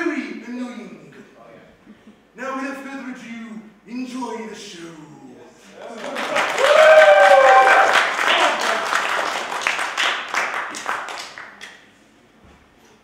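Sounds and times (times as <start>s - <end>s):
audience applause: 5.8s - 11.7s.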